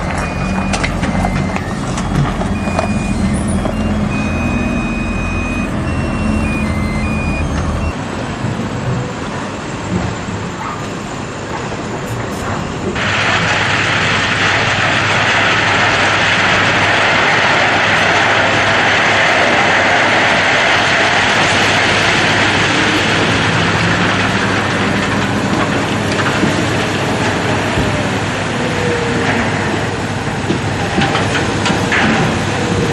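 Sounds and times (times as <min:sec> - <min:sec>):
toy truck tipper mechanism whirring: 0:00.0 - 0:07.9.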